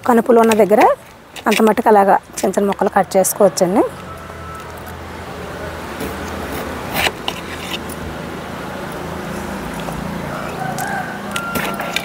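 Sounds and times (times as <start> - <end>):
low engine hum: 3.4 - 12.0.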